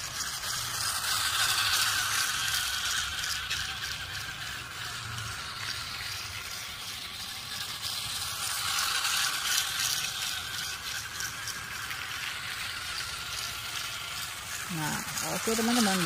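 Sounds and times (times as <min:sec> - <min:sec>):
toy train motors whirring: 0:00.0 - 0:16.0
wheels rattling on track joints: 0:00.0 - 0:16.0.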